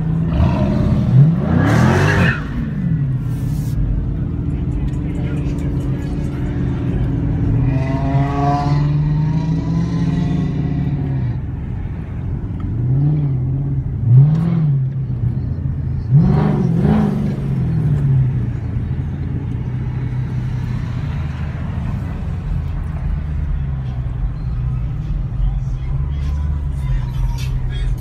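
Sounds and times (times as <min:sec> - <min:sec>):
engine revving: 0:00.0 - 0:02.8, 0:04.8 - 0:11.1, 0:16.0 - 0:18.2
car engine rumbling: 0:00.0 - 0:28.0.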